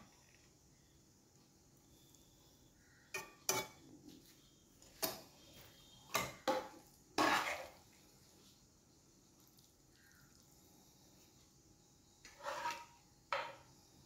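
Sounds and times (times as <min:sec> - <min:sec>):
metal spoon clinking on pan: 0:03.1 - 0:03.8.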